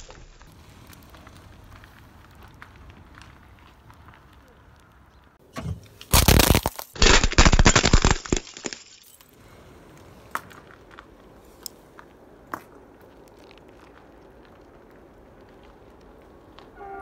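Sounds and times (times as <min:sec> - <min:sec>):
tyre crushing brittle objects: 0:05.9 - 0:09.3.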